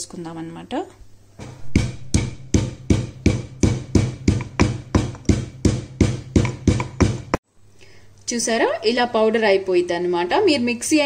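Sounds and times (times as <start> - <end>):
stone pestle pounding in mortar: 1.7 - 7.4.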